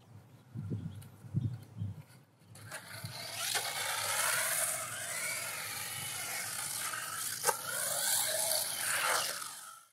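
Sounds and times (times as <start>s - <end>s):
faint motor whine: 2.5s - 9.9s
toy truck motor and tyres hissing: 2.6s - 9.9s.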